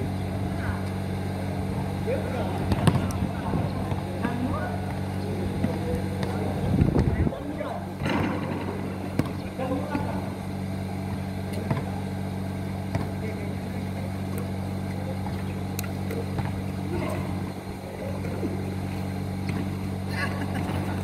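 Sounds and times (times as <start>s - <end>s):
low mechanical hum: 0.0s - 21.0s
basketball bouncing on concrete: 2.6s - 7.1s, 8.0s - 10.2s, 11.1s - 12.0s, 12.8s - 13.4s, 16.2s - 17.2s.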